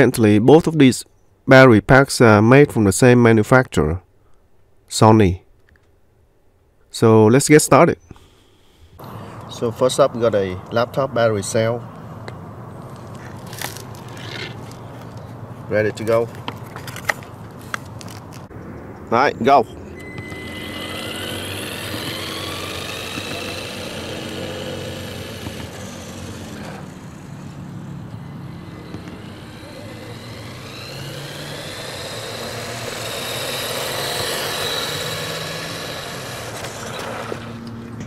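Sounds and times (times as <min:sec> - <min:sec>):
toy truck electric motor whining: 0:20.0 - 0:37.8.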